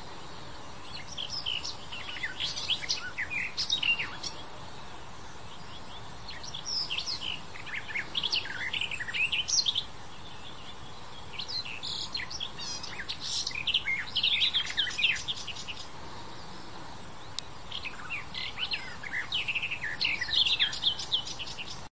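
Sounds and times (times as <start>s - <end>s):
bird warbling song: 0.0s - 21.9s.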